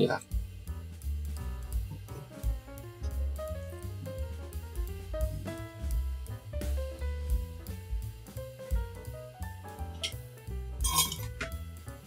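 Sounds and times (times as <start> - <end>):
instrumental music with bass and drums: 0.0 - 12.0
bright clink: 10.8 - 11.3.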